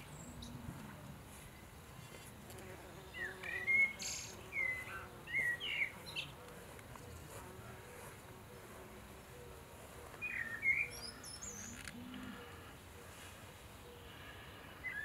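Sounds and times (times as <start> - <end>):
songbird chirping: 0.0 - 15.0.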